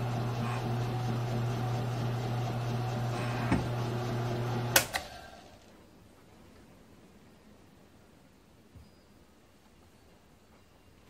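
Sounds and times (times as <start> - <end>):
mill-drill motor humming: 0.0 - 5.6.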